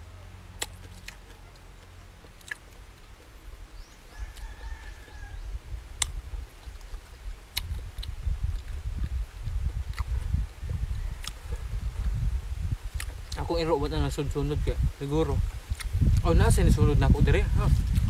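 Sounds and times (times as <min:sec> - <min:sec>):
low rumbling noise: 0:00.0 - 0:18.0
mouth smacks and chewing: 0:00.5 - 0:13.4, 0:15.7 - 0:16.3, 0:17.7 - 0:18.0.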